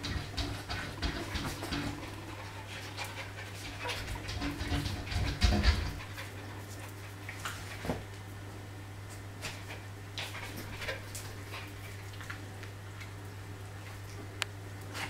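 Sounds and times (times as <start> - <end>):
dog panting: 0.0 - 7.8
low electrical hum: 0.0 - 15.0.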